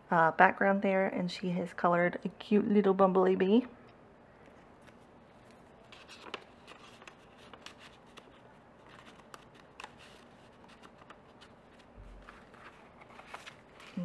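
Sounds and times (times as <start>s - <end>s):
cardstock paper rustling: 4.8s - 14.0s.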